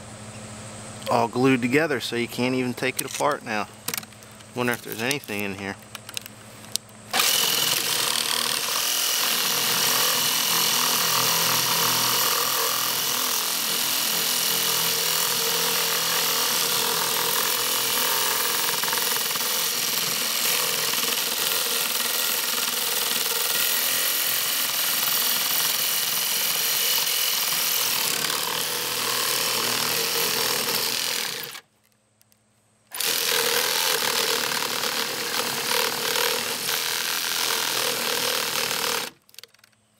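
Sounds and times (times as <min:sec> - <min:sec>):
electric saw cutting plastic tube: 0:07.1 - 0:31.7, 0:32.9 - 0:39.5.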